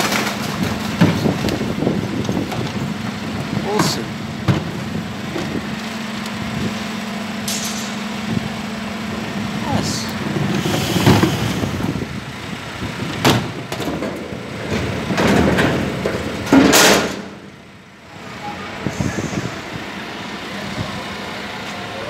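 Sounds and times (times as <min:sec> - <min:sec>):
lorry engine humming: 0:00.0 - 0:22.0
bin-loading gear clattering: 0:13.7 - 0:17.2.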